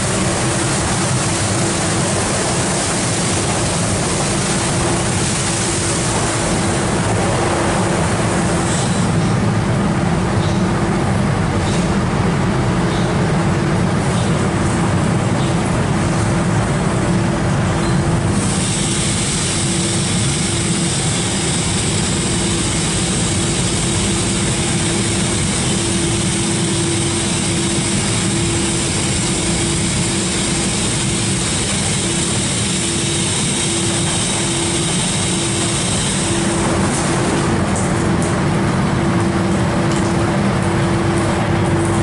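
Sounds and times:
car wash motor hum: 0.0s - 42.0s
water spraying hiss: 18.4s - 37.3s.

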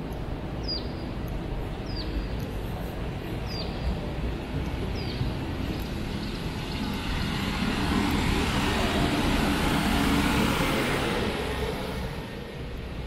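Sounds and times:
motor vehicle passing: 6.0s - 12.6s.

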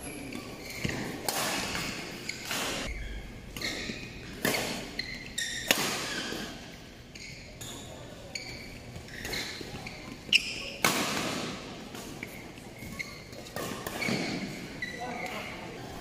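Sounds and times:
racket hitting shuttlecock: 3.6s - 6.6s.

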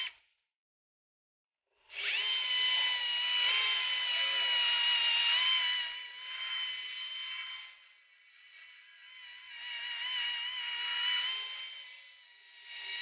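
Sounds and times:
cordless drill whining: 1.9s - 13.0s.

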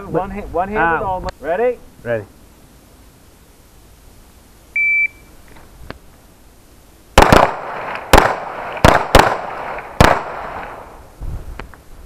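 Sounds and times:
shot timer beep: 4.8s - 5.3s
pistol shots: 7.2s - 10.9s.

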